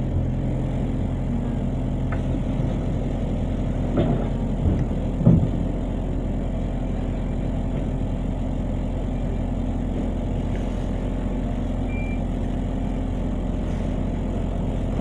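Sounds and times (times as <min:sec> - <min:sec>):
bus engine idling hum: 0:00.0 - 0:15.0
short high beep: 0:11.9 - 0:12.2.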